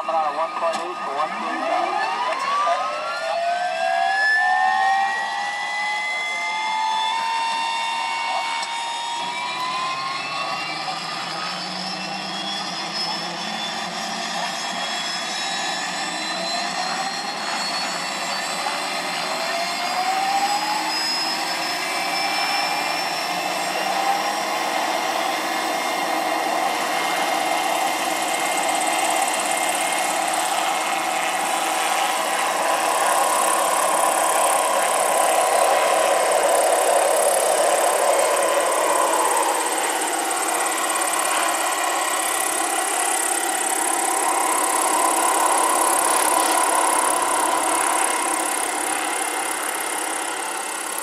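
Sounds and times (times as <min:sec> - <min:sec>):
model helicopter whine: 0:00.0 - 0:51.0
rotor whoosh: 0:24.3 - 0:51.0.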